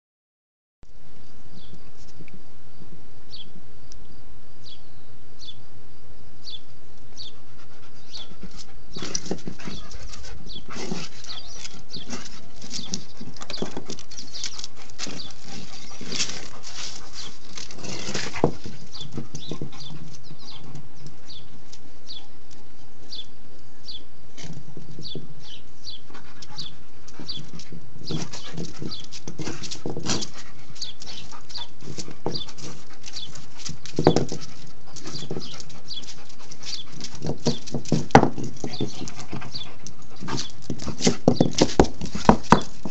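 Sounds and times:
rock scraping on concrete: 9.0s - 19.8s, 36.2s - 42.9s.

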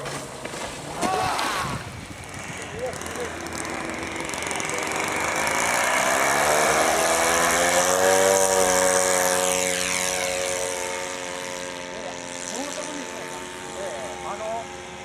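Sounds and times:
model plane engine and propeller: 1.7s - 15.0s.

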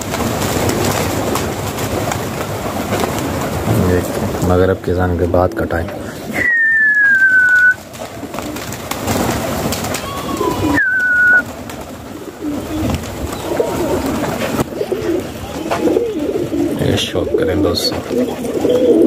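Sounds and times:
pigeons cooing: 5.4s - 19.0s
high falling whistle: 6.4s - 7.8s, 10.6s - 11.4s.

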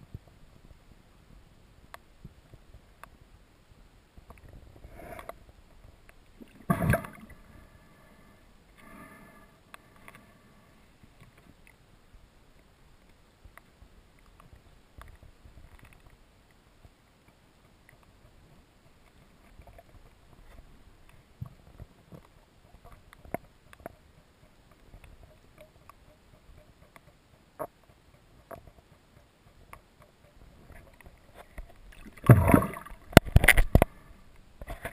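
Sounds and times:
underwater clicks and pops: 6.0s - 7.3s, 21.0s - 34.0s
underwater rumble: 18.2s - 34.9s.

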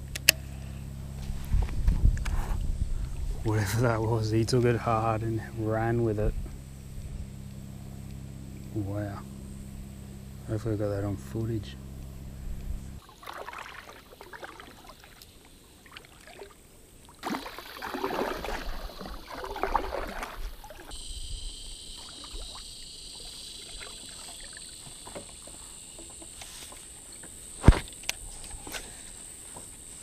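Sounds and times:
high-pitched insect drone: 0.1s - 16.6s, 17.2s - 30.0s
paddle splashing in water: 13.0s - 21.0s, 21.9s - 27.4s.

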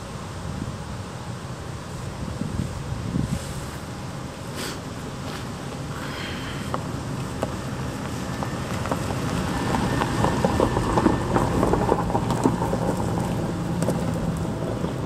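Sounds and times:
tyres crackling over gravel: 3.6s - 15.0s
truck engine running: 4.9s - 15.0s.

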